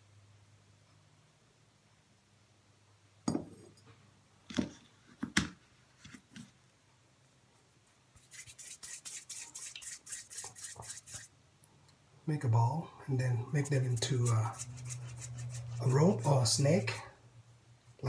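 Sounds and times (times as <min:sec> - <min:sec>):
palms rubbing putty: 0:08.2 - 0:11.3, 0:13.5 - 0:16.9.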